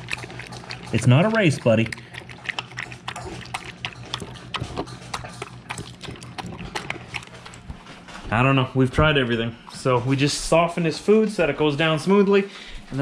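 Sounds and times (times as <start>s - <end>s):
dog chewing from metal bowl: 0.0s - 8.4s.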